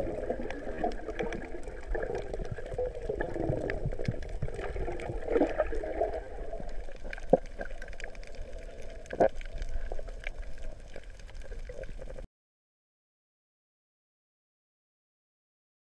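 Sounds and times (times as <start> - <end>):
muffled underwater water noise: 0.0 - 12.3.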